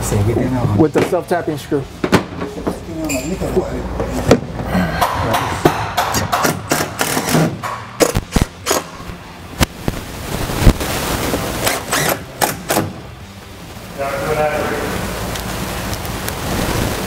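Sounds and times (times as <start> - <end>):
metal trim knocking: 4.3 - 8.0
impact driver rattling bursts: 6.2 - 8.9, 11.6 - 13.0.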